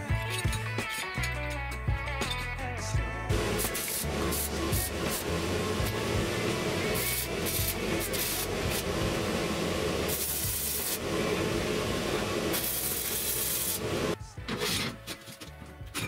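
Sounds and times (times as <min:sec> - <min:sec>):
welder arc crackling and hissing: 0:03.3 - 0:14.2.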